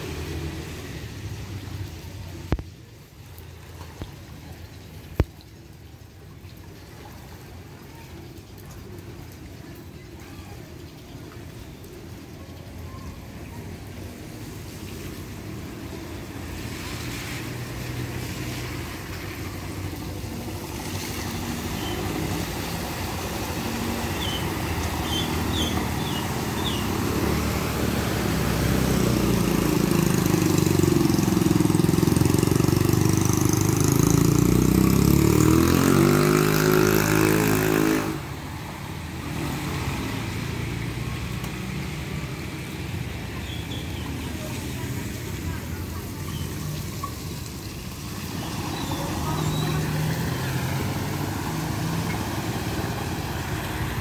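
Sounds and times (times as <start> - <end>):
tyres splashing through water: 0.0 - 54.0
vehicle engines running: 15.2 - 54.0
motorbike passing: 15.4 - 54.0.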